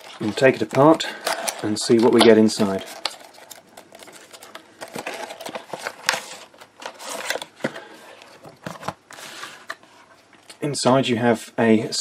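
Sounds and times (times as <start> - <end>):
cardboard box being opened: 0.0 - 7.5.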